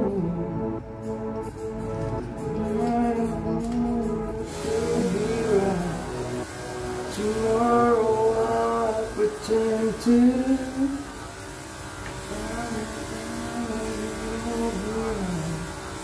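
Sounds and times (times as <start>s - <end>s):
song with sung melody: 0.0s - 11.4s, 12.2s - 15.7s.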